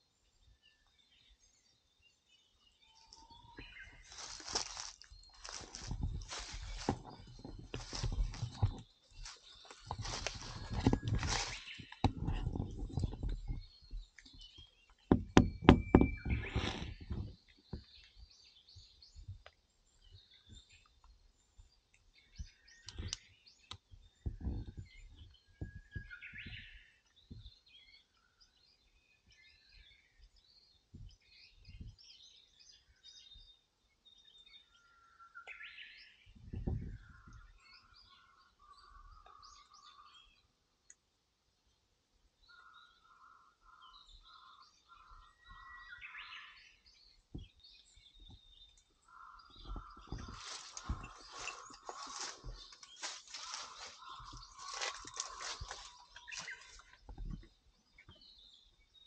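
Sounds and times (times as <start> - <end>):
birds singing and chirping: 0.0 - 59.0
low thumps: 15.1 - 17.9.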